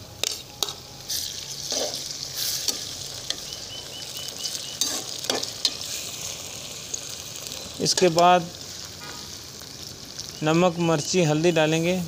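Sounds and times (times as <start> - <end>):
vegetables sizzling in hot oil: 0.0 - 12.0
metal spatula scraping pan: 0.2 - 2.9, 4.8 - 6.0.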